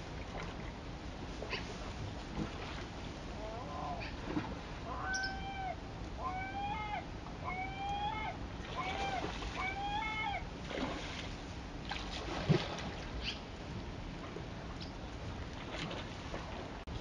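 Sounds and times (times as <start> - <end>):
animal drawn-out calls: 4.8 - 10.5.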